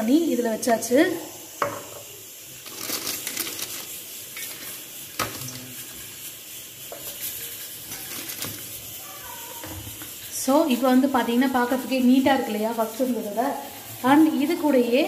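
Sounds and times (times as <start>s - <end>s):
plastic sheet rustling: 2.6s - 6.1s, 7.2s - 10.0s.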